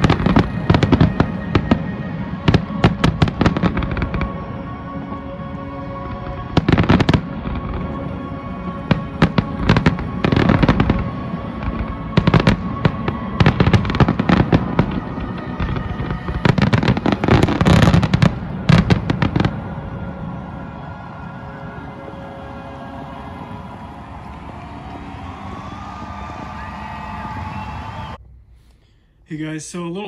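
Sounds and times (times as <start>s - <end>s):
fireworks booming and crackling: 0.0s - 5.0s, 5.8s - 20.9s.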